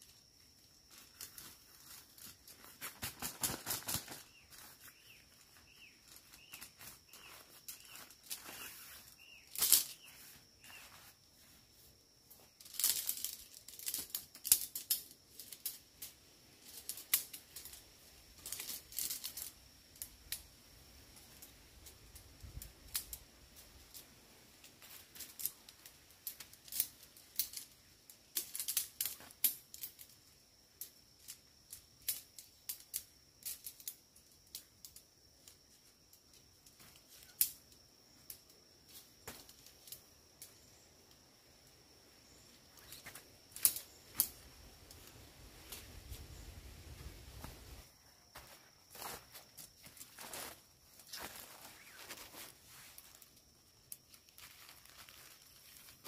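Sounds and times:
tent pole sections clicking together: 0.9s - 5.2s, 6.0s - 10.2s, 12.4s - 17.8s, 21.2s - 41.2s, 42.6s - 46.3s.

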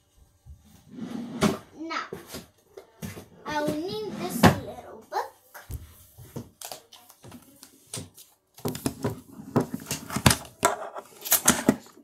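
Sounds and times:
knocks and rustles of books: 1.4s - 4.8s, 5.6s - 12.0s
books tapping on a desk: 8.0s - 11.8s.

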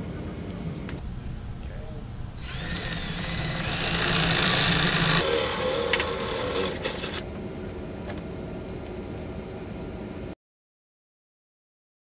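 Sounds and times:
drill drilling into metal: 2.4s - 7.2s.

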